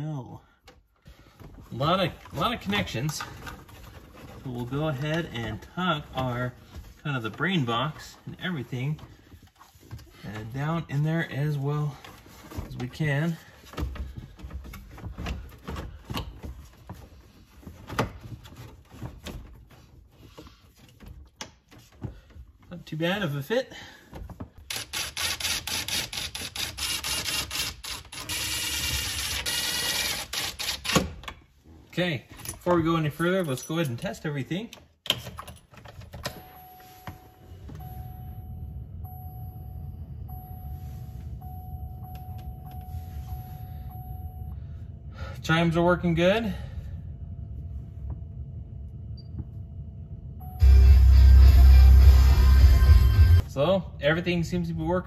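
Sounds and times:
truck warning chime: 36.2 - 45.8
low steady rumble: 36.3 - 55.0.

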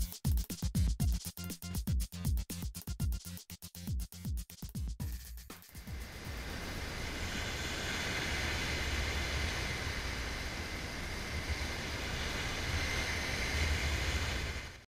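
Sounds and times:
wind rumbling on microphone: 5.9 - 14.9.

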